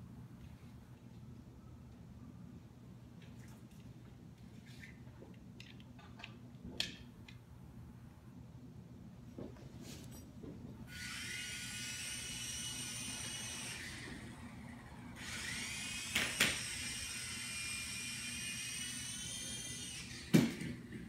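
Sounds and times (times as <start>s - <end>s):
toy drone motors whining: 10.9s - 20.8s.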